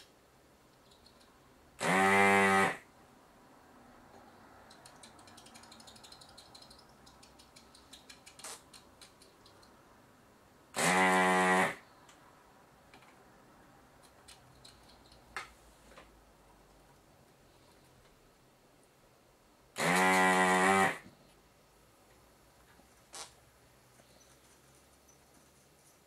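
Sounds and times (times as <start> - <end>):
vacuum pump buzzing: 1.8 - 2.8, 10.8 - 11.8, 19.8 - 21.1.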